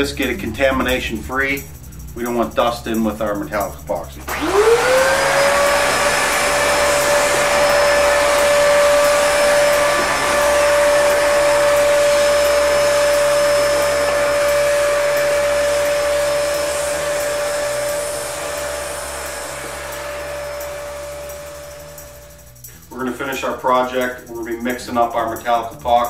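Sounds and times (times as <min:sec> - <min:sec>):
vacuum cleaner whine: 0:04.2 - 0:23.9.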